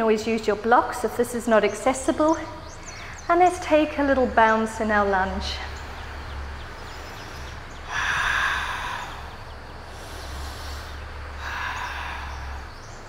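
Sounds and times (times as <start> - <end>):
steady low hum: 0.0 - 13.0
woman breathing: 6.8 - 13.0.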